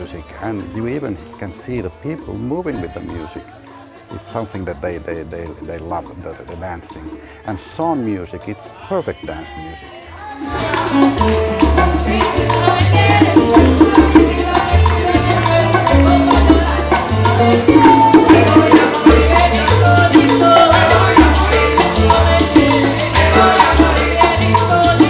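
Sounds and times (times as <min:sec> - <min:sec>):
acoustic guitars: 0:00.0 - 0:25.0
maracas: 0:00.0 - 0:25.0
upright bass: 0:00.0 - 0:25.0
woman singing: 0:09.3 - 0:25.0.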